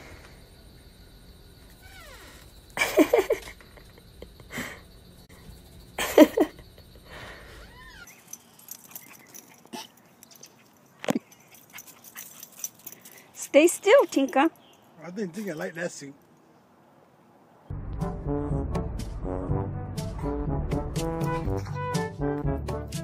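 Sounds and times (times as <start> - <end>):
dog whining: 7.6 - 8.2.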